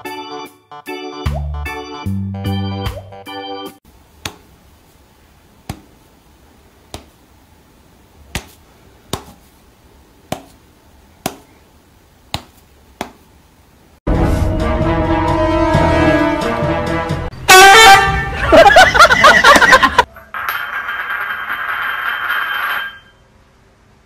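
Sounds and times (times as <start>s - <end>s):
music: 0.0s - 3.8s, 14.1s - 17.4s
car horn: 14.7s - 18.5s.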